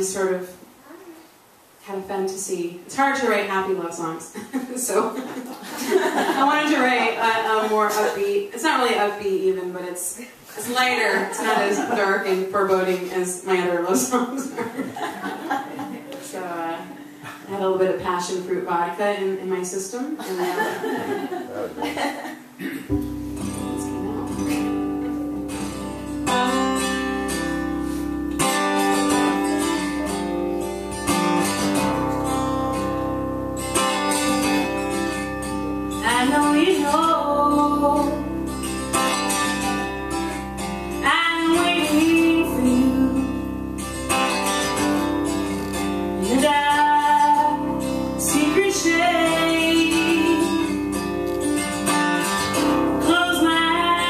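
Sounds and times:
acoustic guitar strumming chords: 21.0s - 54.0s
woman singing: 36.0s - 38.4s, 41.0s - 43.5s, 46.2s - 50.8s, 52.9s - 54.0s.

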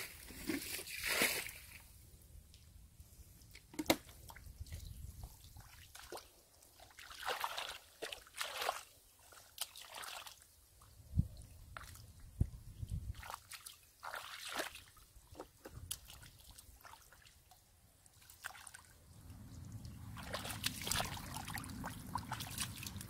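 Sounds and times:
mud sloshing and squelching: 4.2s - 10.4s, 13.0s - 23.0s.

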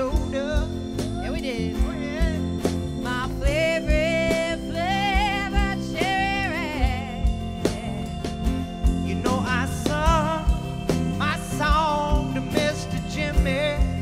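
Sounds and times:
acoustic guitar: 0.0s - 14.0s
drum kit beat: 0.0s - 14.0s
woman singing: 1.2s - 2.4s, 3.0s - 8.3s.

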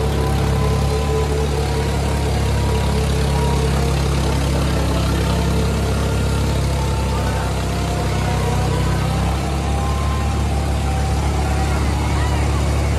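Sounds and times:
tractor diesel engines under load: 0.0s - 12.9s.

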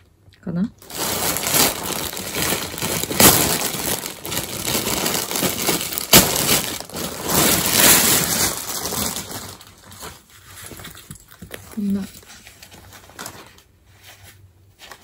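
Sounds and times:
plastic bag crinkling: 0.8s - 13.8s.

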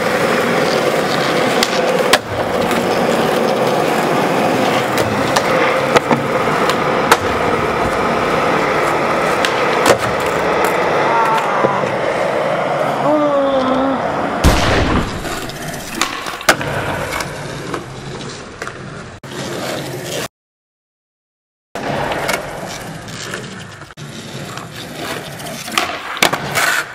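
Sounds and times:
skateboard popping and landing: 0.0s - 12.9s, 14.9s - 20.2s, 21.8s - 26.9s
skateboard wheels rolling on concrete: 0.0s - 14.4s, 15.1s - 20.3s, 21.8s - 26.9s
person crying out: 10.9s - 12.0s, 13.0s - 14.1s.

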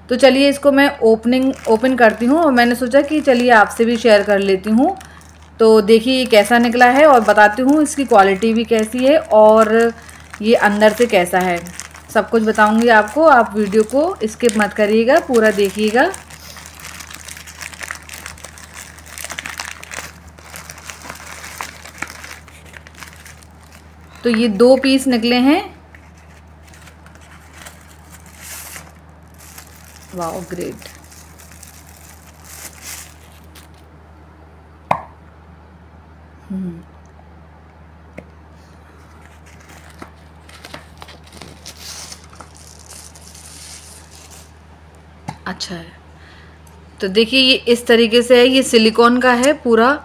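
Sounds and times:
plastic packaging crinkling: 1.1s - 25.0s, 25.9s - 33.9s, 39.0s - 44.6s.

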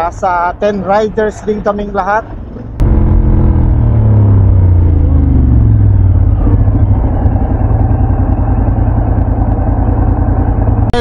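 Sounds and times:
motorcycle engine running: 2.8s - 11.0s.

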